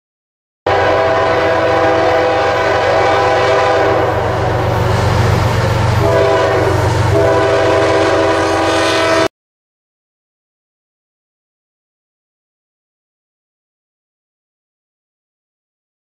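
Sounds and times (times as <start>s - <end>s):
locomotive engine rumbling: 0.7s - 9.2s
locomotive air horn chord: 0.7s - 9.3s.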